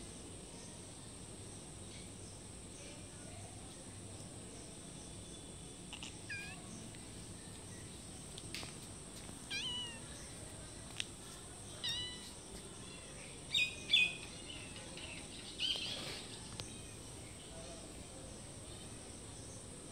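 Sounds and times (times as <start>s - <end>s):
cats meowing: 5.9s - 6.8s, 9.4s - 10.1s, 11.8s - 12.4s.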